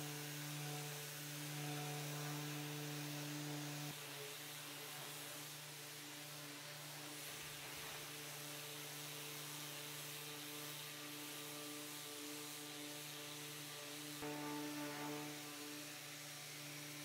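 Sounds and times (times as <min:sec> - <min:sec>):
orbital sander humming: 0:00.0 - 0:03.9, 0:08.0 - 0:17.0.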